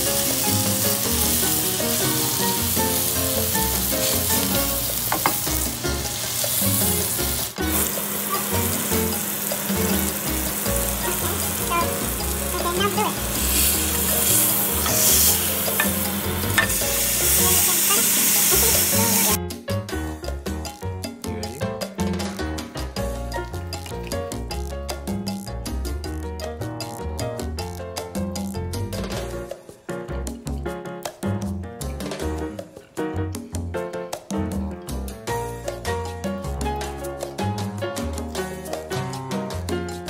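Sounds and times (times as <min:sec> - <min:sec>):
steak sizzling in a pan: 0:00.0 - 0:19.4
music: 0:00.0 - 0:40.0.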